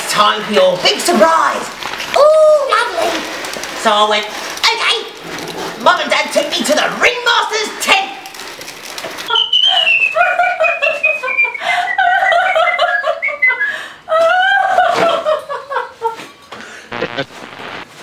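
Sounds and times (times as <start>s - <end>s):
woman laughing high-pitched: 9.3s - 16.3s.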